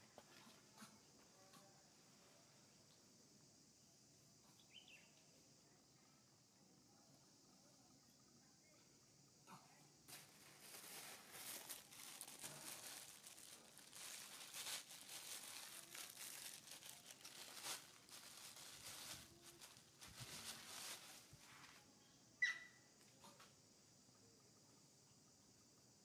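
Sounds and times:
crinkly rustling: 0:10.0 - 0:21.8.

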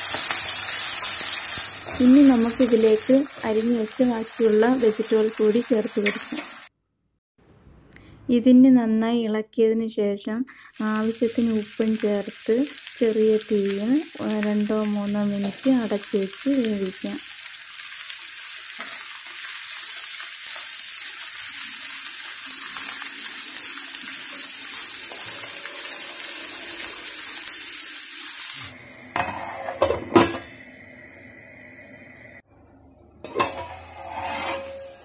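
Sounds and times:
vegetables sizzling in oil: 0:00.0 - 0:06.7, 0:10.7 - 0:32.4, 0:33.3 - 0:35.0
metal pan and lid clanking: 0:29.1 - 0:30.5, 0:33.2 - 0:35.0.

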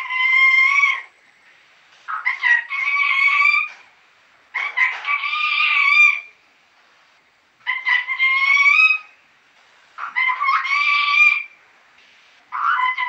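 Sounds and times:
parrot calling: 0:00.0 - 0:01.1, 0:02.1 - 0:03.8, 0:04.5 - 0:06.4, 0:07.6 - 0:09.2, 0:10.0 - 0:11.6, 0:12.5 - 0:13.0.

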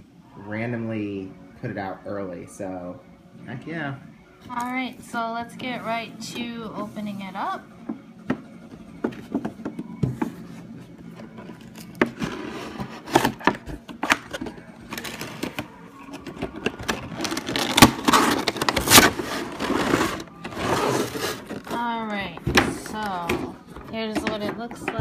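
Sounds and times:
plastic crackling: 0:11.4 - 0:25.0.

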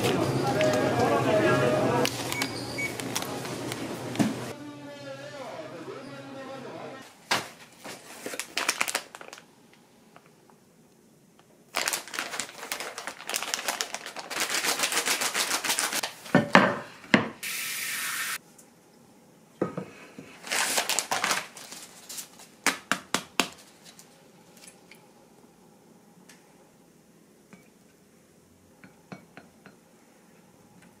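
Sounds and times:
plastic package crinkling: 0:07.9 - 0:09.5, 0:11.7 - 0:16.2, 0:20.4 - 0:22.5
running water hiss: 0:17.4 - 0:18.4.

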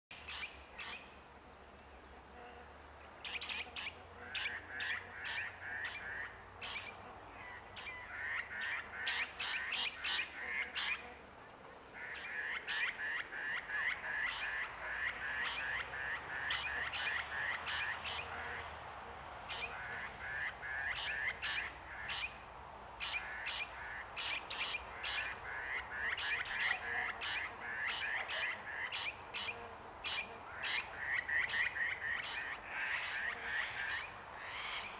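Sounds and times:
small birds alarm calls: 0:19.5 - 0:22.4, 0:23.0 - 0:34.9.

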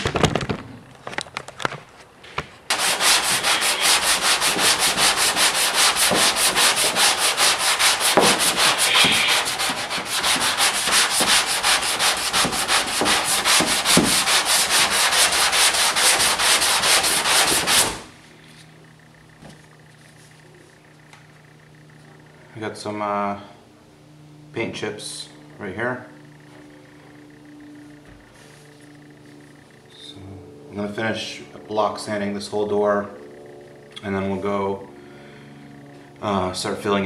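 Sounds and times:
sandpaper scraping on painted metal: 0:02.7 - 0:18.1.

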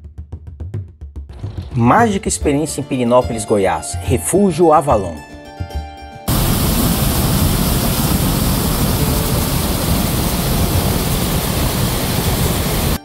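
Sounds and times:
waterfall rushing into pool: 0:06.3 - 0:13.0.

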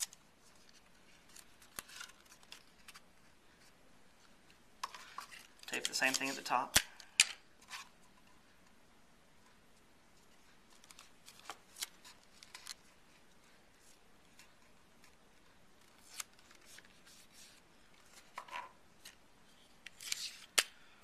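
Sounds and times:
faint paper rustles: 0:00.0 - 0:06.6, 0:10.2 - 0:20.6.

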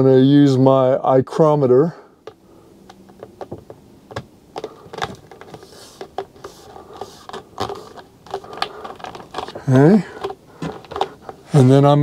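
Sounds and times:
backing paper rustling: 0:02.9 - 0:12.0
plastic track clicking and scraping: 0:04.6 - 0:11.6.

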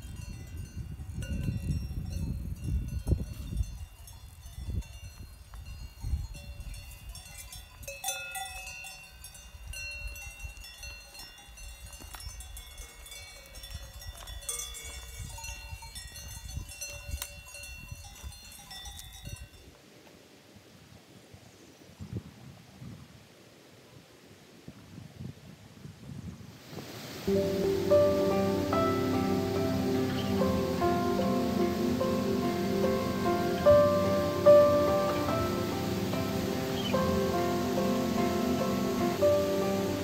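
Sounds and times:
wind rumble on microphone: 0:00.0 - 0:08.0, 0:11.6 - 0:19.8, 0:20.6 - 0:40.0
cowbells clanking: 0:00.0 - 0:19.6.

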